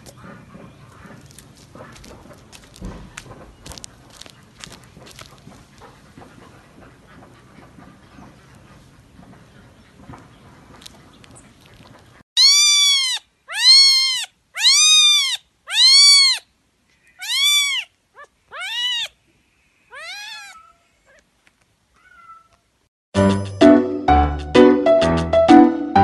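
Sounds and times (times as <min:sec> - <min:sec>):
cat meowing: 0:12.4 - 0:16.5, 0:17.2 - 0:19.2, 0:19.9 - 0:21.2, 0:22.0 - 0:22.7.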